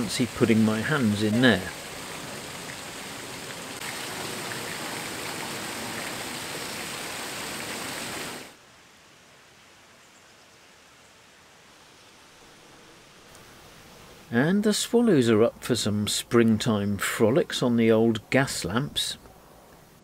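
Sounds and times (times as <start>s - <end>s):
water rushing in a lock chamber: 0.0s - 8.6s
faint hiss: 0.0s - 20.0s.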